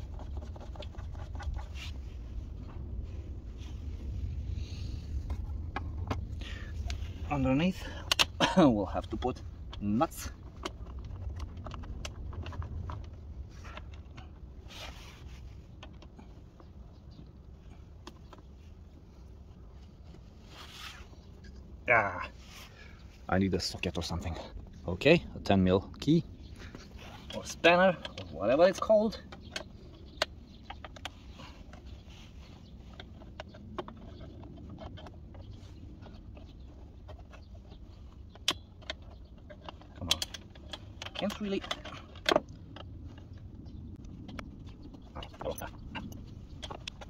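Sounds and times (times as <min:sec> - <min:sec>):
low rumble: 0:00.0 - 0:28.4, 0:41.7 - 0:47.0
short rustle: 0:14.6 - 0:16.4, 0:18.5 - 0:23.8
small fasteners clicking: 0:32.6 - 0:47.0.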